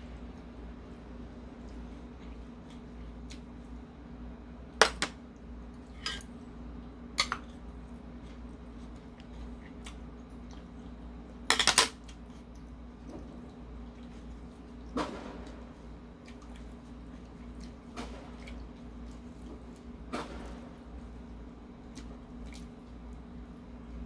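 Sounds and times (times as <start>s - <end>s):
utensils clinking on porcelain dishes: 6.0s - 6.3s, 11.5s - 12.0s.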